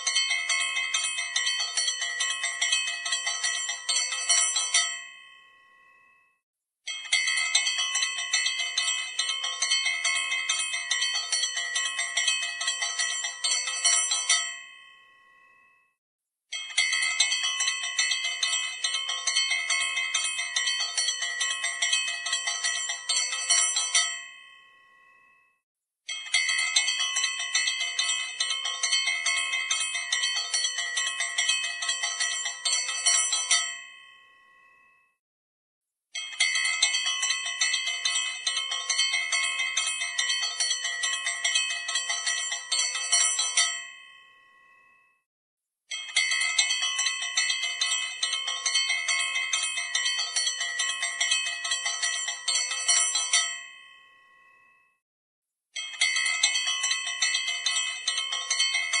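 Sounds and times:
bell rung rapidly: 46.0 - 54.0.

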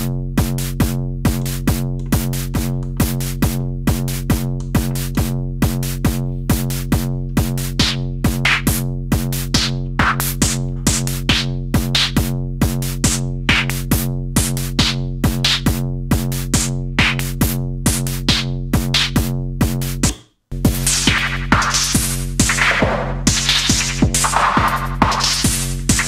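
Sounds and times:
electronic drum hits: 21.0 - 26.0.

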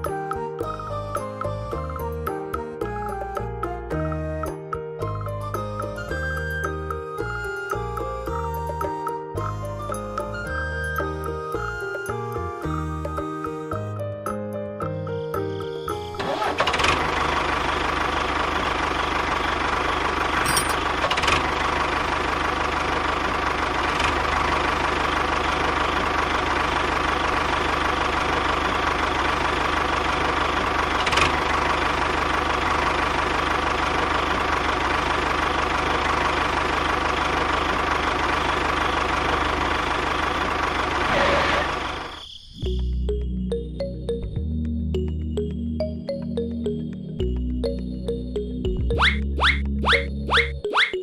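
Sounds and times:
tractor engine idling: 15.2 - 42.2.

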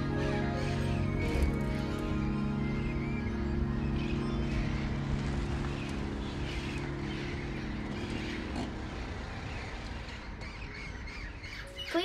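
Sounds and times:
held music chord: 0.0 - 9.4
vehicle engine rumble: 0.9 - 11.1.

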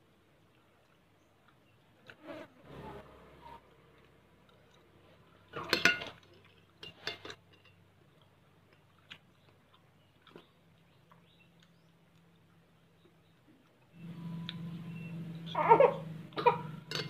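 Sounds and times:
metal spoon scraping glass bowl: 16.8 - 17.0.

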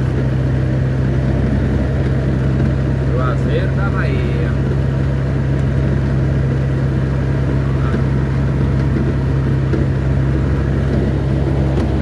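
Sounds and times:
vehicle engine drone and road noise: 0.0 - 12.0.

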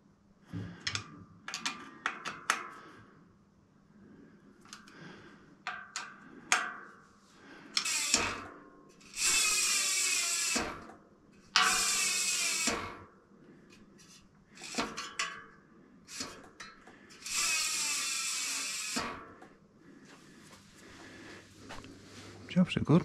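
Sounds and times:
hand ratchet clicking: 7.7 - 13.0, 14.6 - 15.3, 16.1 - 19.4.

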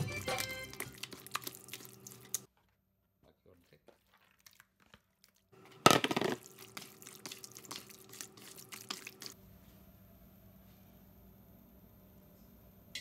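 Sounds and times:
hands squelching raw chicken: 0.0 - 2.5, 3.6 - 5.7, 6.4 - 9.4.

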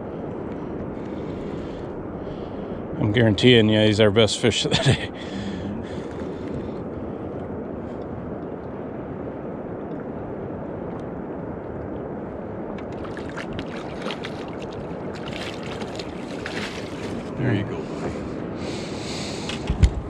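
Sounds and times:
rushing water and wind: 0.0 - 20.0
fish splashing at surface: 13.0 - 17.3.

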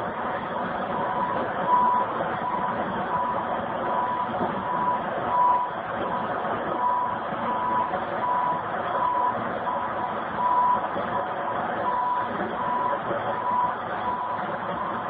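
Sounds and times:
machine engine running: 0.0 - 15.0
backup alarm beeping: 1.1 - 5.7.

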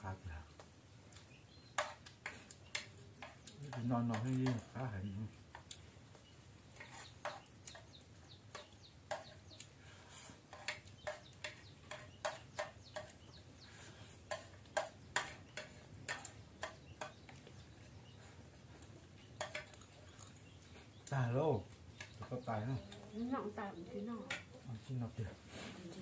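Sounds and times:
spoons tapping and scraping a bowl: 1.7 - 4.9, 6.7 - 17.7, 19.3 - 20.4, 21.9 - 22.4, 24.2 - 24.5.

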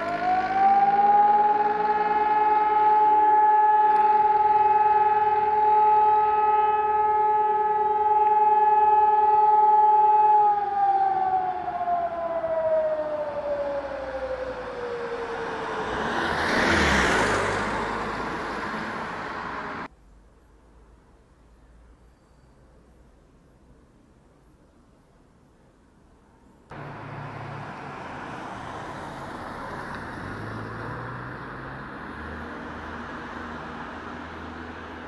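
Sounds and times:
siren winding down: 0.0 - 18.4.

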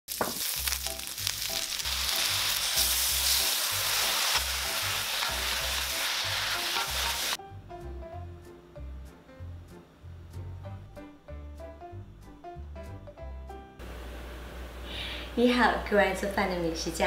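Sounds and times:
food sizzling in a wok: 0.1 - 7.4.

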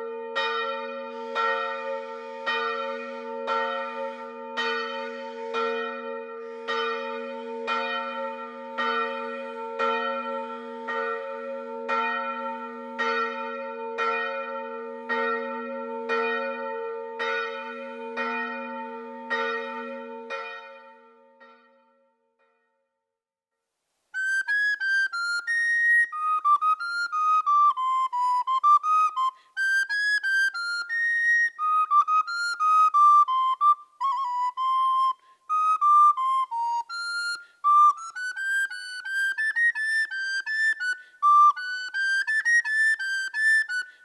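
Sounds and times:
church bells ringing: 0.0 - 22.2.

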